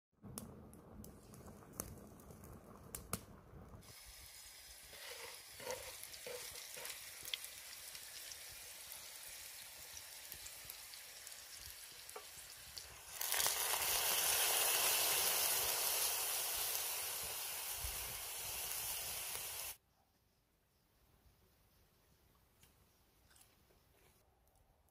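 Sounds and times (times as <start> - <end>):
food sizzling in a pan: 3.7 - 19.8.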